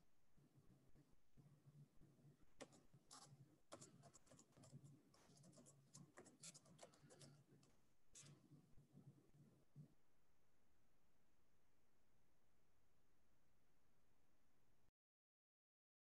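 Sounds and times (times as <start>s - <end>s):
faint irregular clicks: 0.5s - 9.9s.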